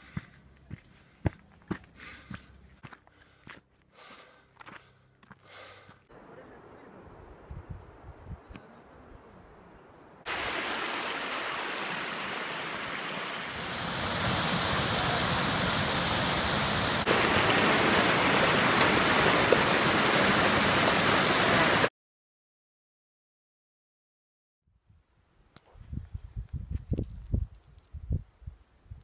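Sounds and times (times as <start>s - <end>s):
creek rushing down cascade: 10.2s - 21.9s.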